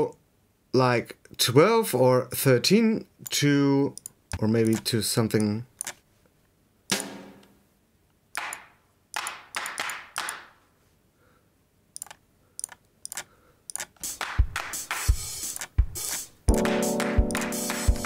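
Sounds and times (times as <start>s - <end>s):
soft mouse clicks: 4.0s - 6.0s, 12.0s - 14.0s
pitched drum hit: 6.9s - 7.4s, 14.0s - 18.0s.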